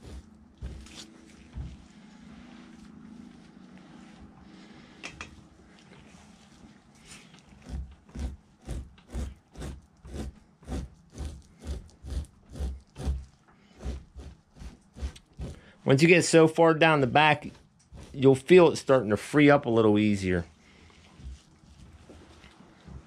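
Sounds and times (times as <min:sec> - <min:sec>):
knife scraping hide: 0:00.0 - 0:02.6, 0:06.9 - 0:16.1, 0:17.0 - 0:19.0.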